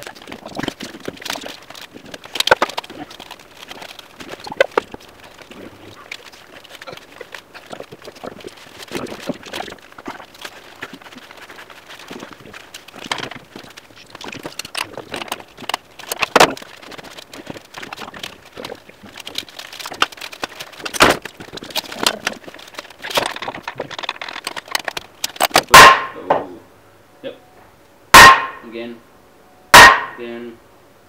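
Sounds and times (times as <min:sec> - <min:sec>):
plastic pipe scraping and rubbing: 0:00.0 - 0:25.7
sharp knocks: 0:29.8 - 0:30.2.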